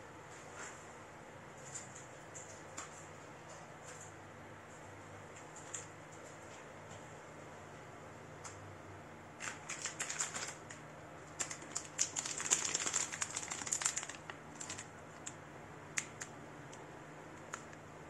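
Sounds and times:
small clicks and crinkles: 1.6 - 7.0, 9.4 - 15.4, 16.0 - 17.8.

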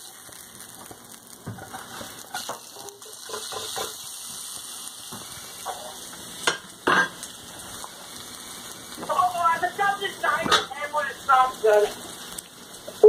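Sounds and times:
fish fillets sizzling in oil: 0.0 - 13.0
spatula scraping pan: 1.5 - 4.4.

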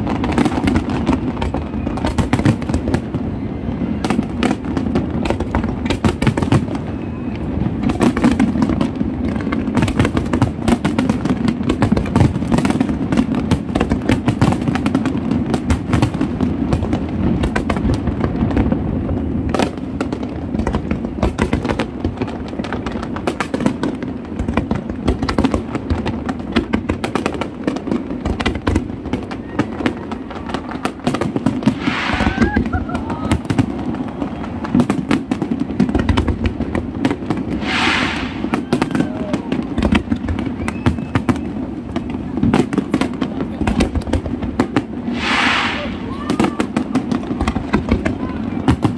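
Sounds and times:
firework shells bursting: 31.5 - 32.9, 37.3 - 39.2, 45.0 - 46.8.

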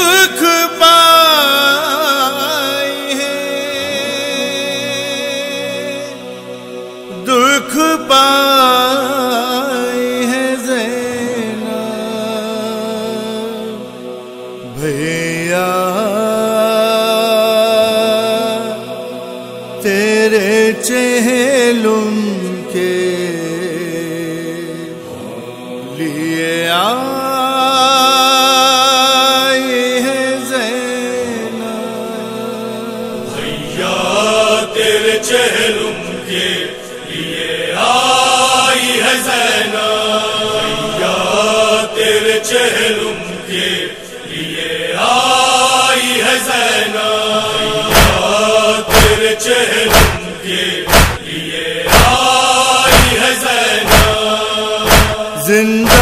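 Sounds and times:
man chanting a lament: 0.0 - 6.2, 7.1 - 14.0, 14.6 - 19.1, 19.7 - 43.9, 47.7 - 56.0
hands striking chests: 47.9 - 48.3, 48.9 - 49.3, 49.9 - 50.2, 50.9 - 51.2, 51.9 - 52.3, 52.9 - 53.3, 53.9 - 54.3, 54.9 - 55.2.

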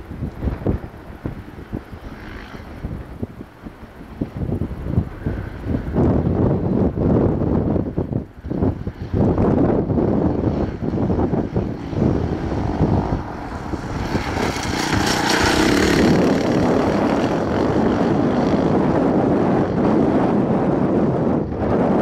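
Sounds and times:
rally car engine passing: 10.1 - 19.9.

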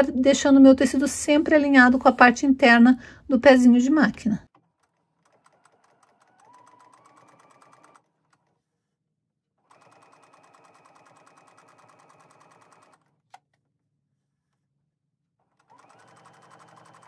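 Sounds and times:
sewing machine stitching: 4.1 - 8.8, 9.6 - 13.4, 15.4 - 17.0.

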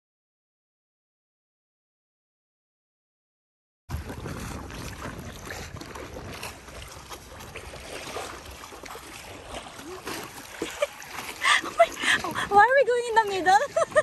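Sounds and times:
paddle splashing in water: 3.9 - 14.0
waves lapping against board: 3.9 - 14.0
wind buffeting microphone: 3.9 - 14.0.

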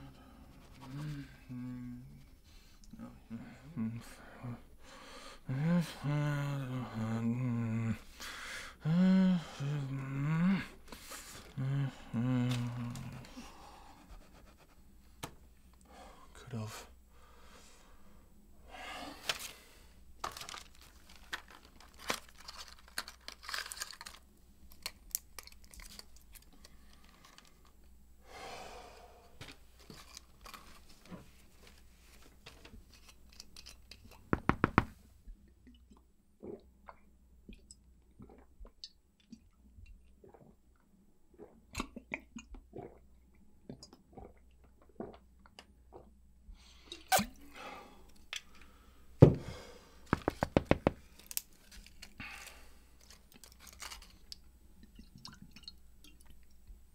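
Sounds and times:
newspaper pages rustling: 20.2 - 24.2.

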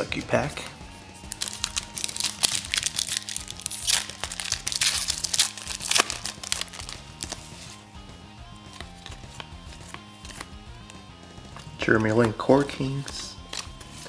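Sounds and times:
quiet background music: 0.0 - 14.0
foil wrapper crinkling: 1.2 - 7.8.

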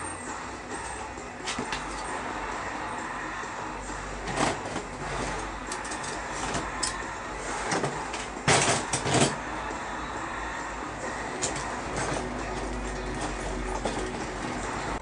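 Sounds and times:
outdoor background noise: 0.0 - 15.0
things clunking and knocking: 4.2 - 9.5, 11.3 - 15.0.

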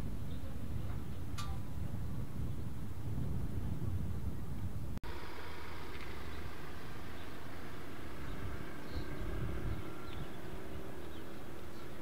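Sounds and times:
wind on microphone: 0.0 - 5.0, 7.7 - 12.0
low fluttering rumble: 0.0 - 12.0.

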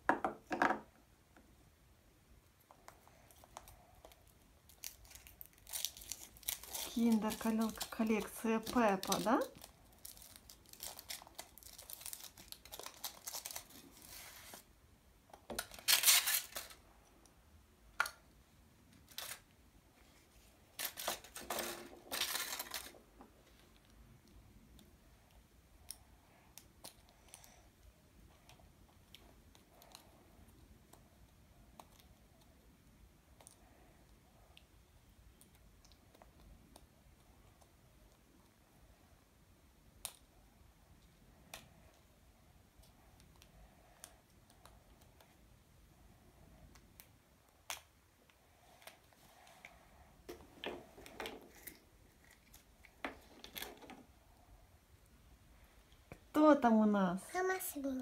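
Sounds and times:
plastic toy capsule clicks and rustles: 4.7 - 14.1, 15.4 - 16.8, 20.7 - 23.6.

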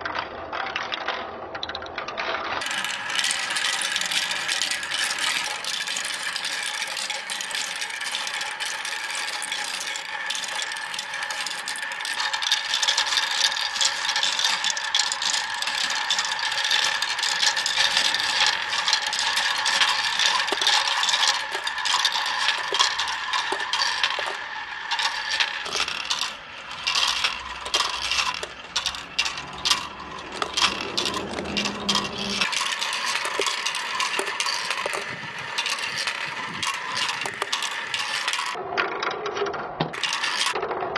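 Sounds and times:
marbles rattling through plastic run: 0.0 - 40.9.

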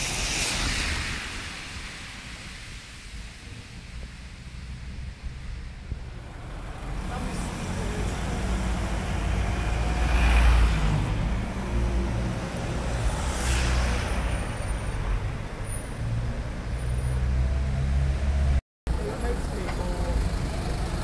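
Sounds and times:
tyres hissing on wet road: 0.0 - 14.8
background traffic: 0.0 - 21.0
car driving past: 6.2 - 14.3.

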